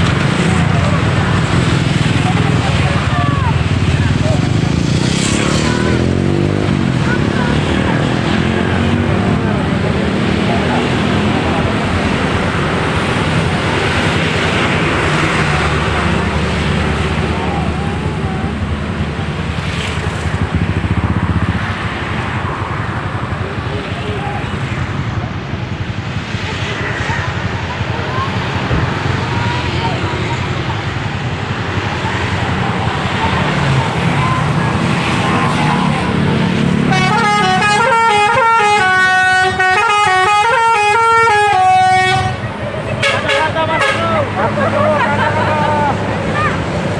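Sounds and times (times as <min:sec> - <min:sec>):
bus diesel engine rumble: 0:05.6 - 0:21.4, 0:22.9 - 0:46.9
multi-note air horn melody: 0:36.8 - 0:42.4, 0:43.0 - 0:44.2.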